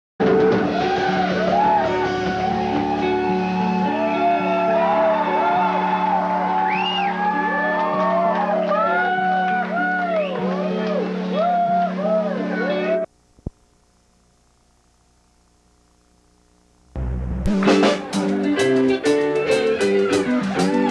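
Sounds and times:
low droning notes: 0:17.0 - 0:17.9.

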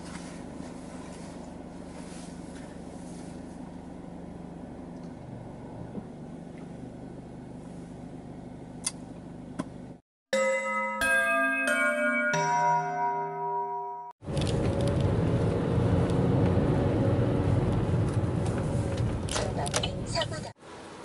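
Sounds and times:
car engine hum from inside cabin: 0:00.0 - 0:10.0, 0:14.2 - 0:21.0
chiming glockenspiel-like music: 0:10.3 - 0:14.2.

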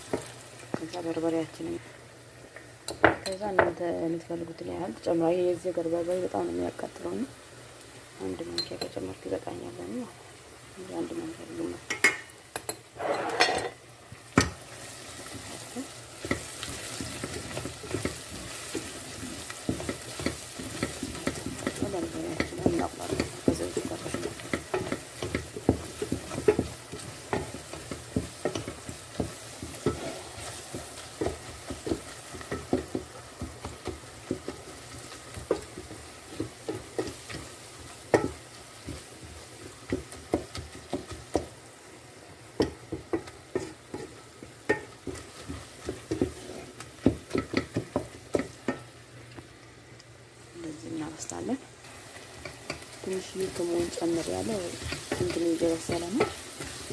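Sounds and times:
onions sizzling in oil: 0:00.0 - 0:56.9
spoon scraping metal pot: 0:11.9 - 0:13.8.

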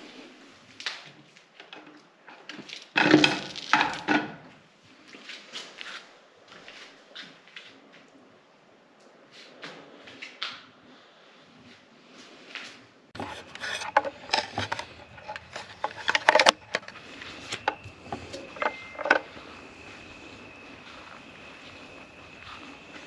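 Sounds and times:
background hiss: 0:00.0 - 0:23.0
objects clicking and knocking: 0:01.6 - 0:04.5, 0:13.2 - 0:19.6
faint steady high tone: 0:14.2 - 0:23.0.

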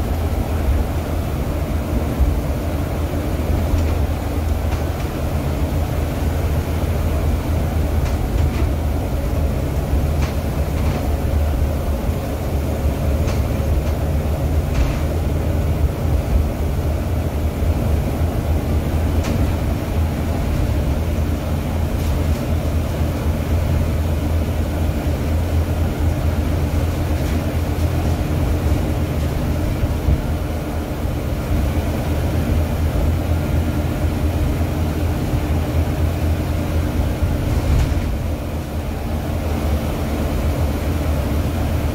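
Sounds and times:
bus engine and road drone: 0:00.0 - 0:41.9
body clicks and rattles: 0:07.9 - 0:09.5, 0:10.1 - 0:11.3, 0:13.0 - 0:15.2, 0:19.1 - 0:19.7.

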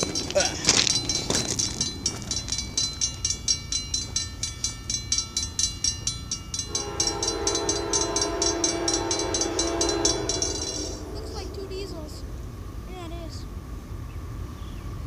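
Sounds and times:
fast steady ringing bell: 0:00.0 - 0:12.1
low train rumble: 0:00.0 - 0:15.0
locomotive horn chord: 0:06.6 - 0:12.7.

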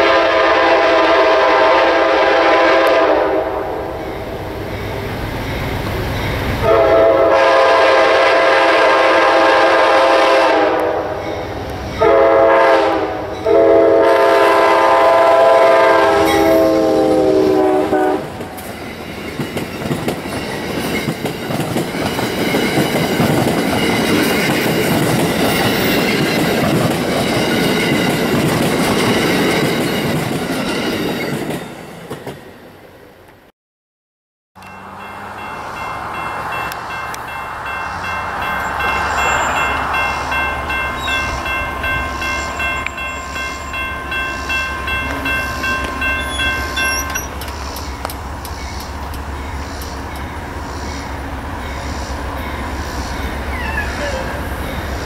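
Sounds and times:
train air horn blasts: 0:00.0 - 0:04.0, 0:06.6 - 0:11.3, 0:12.0 - 0:18.6
train wheels clattering on rails: 0:18.0 - 0:32.5, 0:34.6 - 0:53.8.

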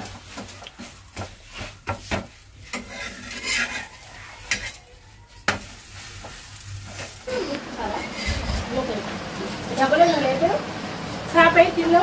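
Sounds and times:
metal spatula scraping a pan: 0:00.0 - 0:08.9
oil sizzling: 0:00.0 - 0:12.0.

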